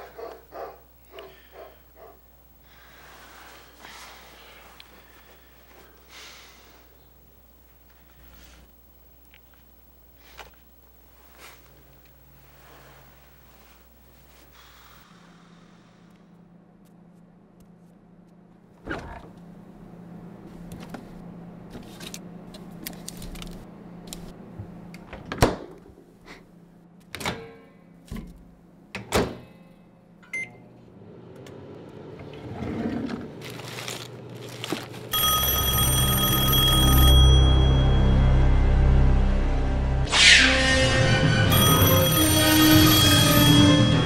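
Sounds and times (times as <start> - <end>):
loud high ringing: 35.1 - 44.0.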